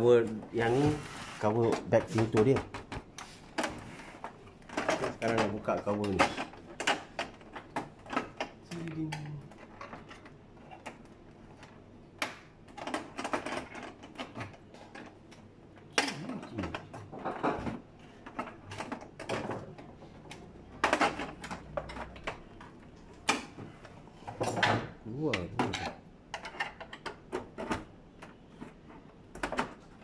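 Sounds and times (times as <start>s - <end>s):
plastic panels clicking and scraping: 0.2s - 8.6s, 9.2s - 30.0s.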